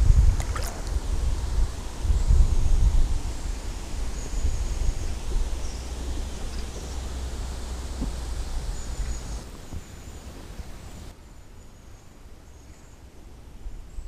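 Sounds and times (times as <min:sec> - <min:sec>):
wind buffeting microphone: 0:00.0 - 0:10.8
rustling leaves: 0:00.0 - 0:14.0.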